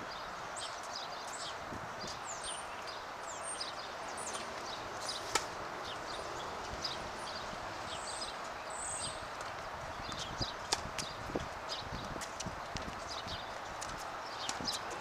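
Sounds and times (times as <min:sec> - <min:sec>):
small birds chirping: 0:00.0 - 0:15.0
racket striking tennis ball: 0:05.2 - 0:05.6.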